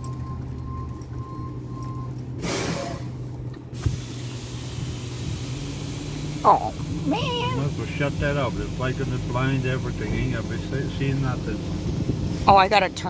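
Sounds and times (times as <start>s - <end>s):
truck engine humming: 0.0s - 13.0s
air brake hiss: 2.4s - 6.1s.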